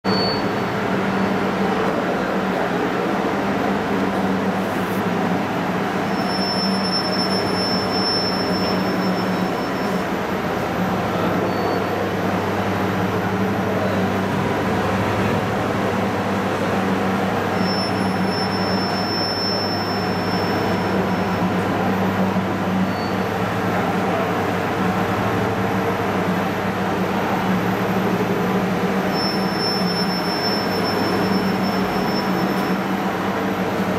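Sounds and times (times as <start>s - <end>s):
thin high whine: 6.0s - 10.2s.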